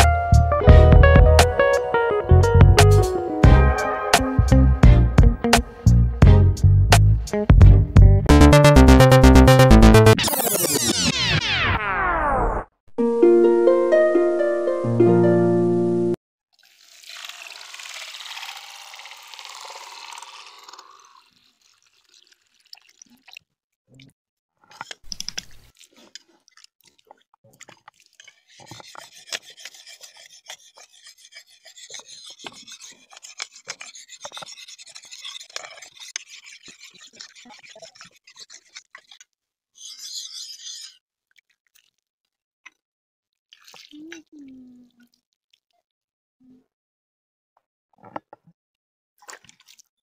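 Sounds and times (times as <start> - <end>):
knife scraping on rock: 27.6 - 41.0.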